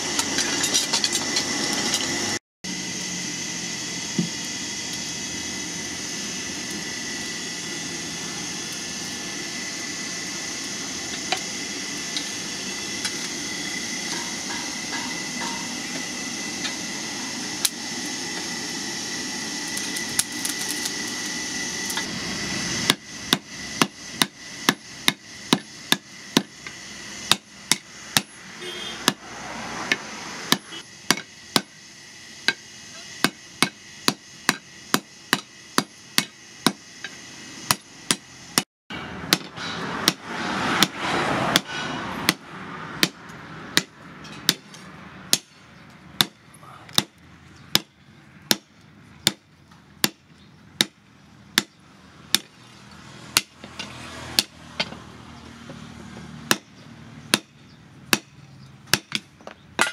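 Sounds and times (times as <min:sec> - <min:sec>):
hammer striking steel: 0:13.9 - 0:16.8, 0:22.8 - 0:31.8, 0:33.2 - 0:38.3, 0:38.9 - 0:51.0, 0:51.6 - 0:52.6, 0:53.3 - 0:55.1, 0:56.5 - 0:59.9.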